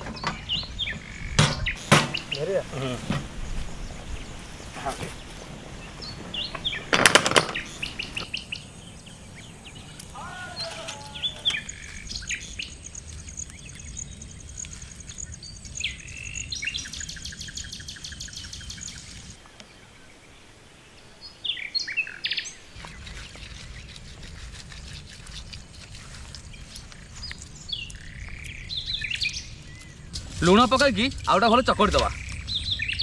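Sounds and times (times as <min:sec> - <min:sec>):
birds chirping: 0:00.0 - 0:33.0
rapid high bird trill: 0:05.9 - 0:19.2.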